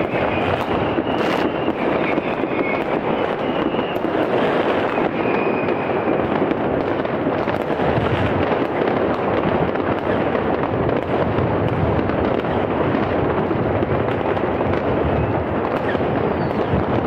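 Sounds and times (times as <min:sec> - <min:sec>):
faint firework whistle: 0:00.0 - 0:09.0, 0:09.8 - 0:17.0
fireworks bangs and crackles: 0:00.0 - 0:17.0.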